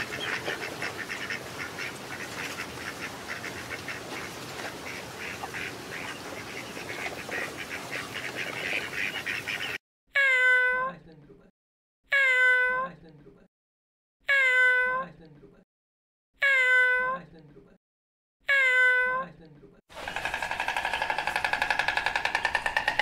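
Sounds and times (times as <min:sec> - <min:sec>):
birds calling: 0:00.0 - 0:09.8, 0:19.9 - 0:23.0.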